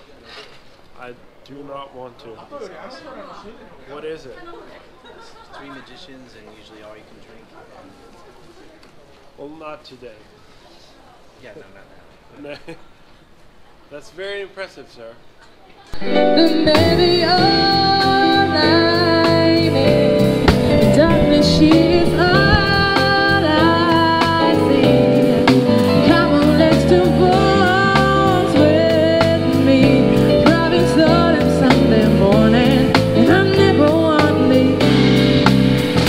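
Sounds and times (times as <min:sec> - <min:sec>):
drums: 0:15.5 - 0:36.0
guitar: 0:15.9 - 0:36.0
woman singing: 0:16.0 - 0:35.1
keyboard: 0:16.0 - 0:36.0.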